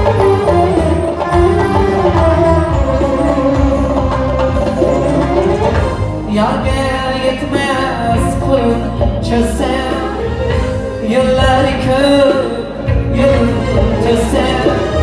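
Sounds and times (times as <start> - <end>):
electric guitar: 0.0 - 15.0
keyboard: 0.0 - 15.0
percussion: 0.0 - 15.0
man singing into a microphone: 6.3 - 15.0.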